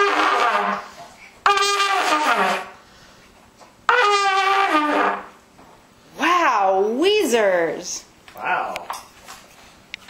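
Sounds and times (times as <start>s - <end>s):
child blowing trumpet: 0.0s - 3.0s, 3.9s - 5.4s.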